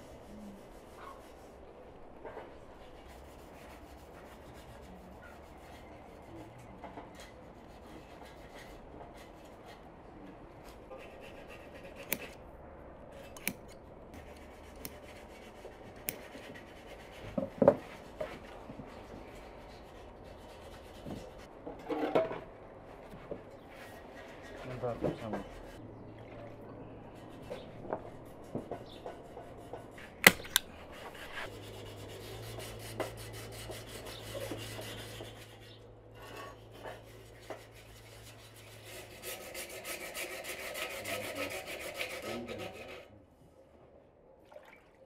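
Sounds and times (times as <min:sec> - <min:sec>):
scissors snipping through foam: 0:11.9 - 0:12.4, 0:13.3 - 0:13.8, 0:16.0 - 0:16.3, 0:30.1 - 0:31.5
sharp clicks: 0:30.2 - 0:30.7.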